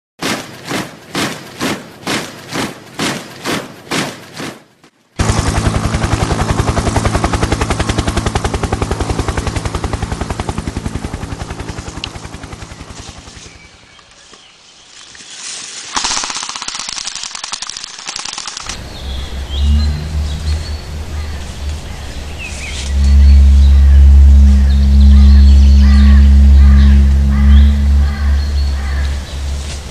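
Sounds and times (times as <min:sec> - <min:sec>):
rapid automatic gunfire: 0:00.2 - 0:04.6, 0:05.2 - 0:13.7, 0:15.9 - 0:18.8.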